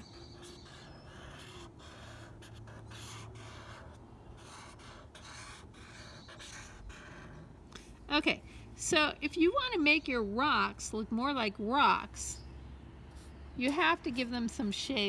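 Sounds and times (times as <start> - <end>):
marker scratching on paper: 0.0 - 8.0.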